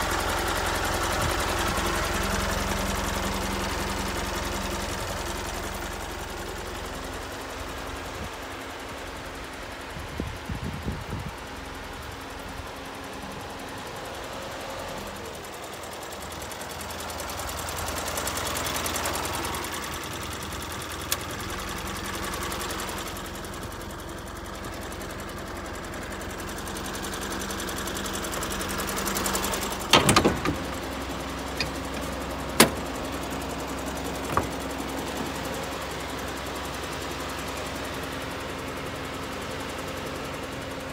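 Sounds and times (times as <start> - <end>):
truck engine idling: 0.0 - 40.9
door latch clicks and clunk: 29.9 - 30.8, 31.6 - 33.0, 34.2 - 35.3.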